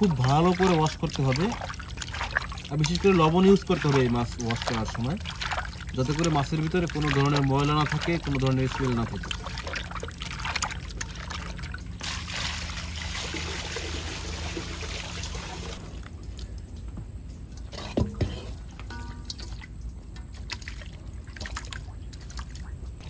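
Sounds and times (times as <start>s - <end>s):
water splashing in a metal bowl: 0.0s - 16.5s, 17.8s - 23.0s.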